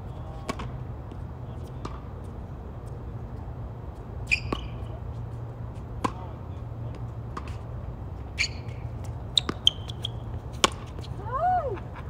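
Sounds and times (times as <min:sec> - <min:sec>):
tennis ball hits and bounces: 0:00.4 - 0:00.8, 0:01.6 - 0:02.2, 0:04.2 - 0:11.2.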